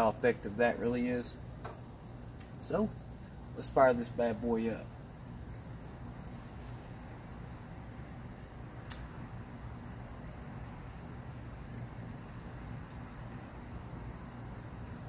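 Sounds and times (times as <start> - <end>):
faint high whine: 0.0 - 15.0
sharp click: 8.9 - 9.1.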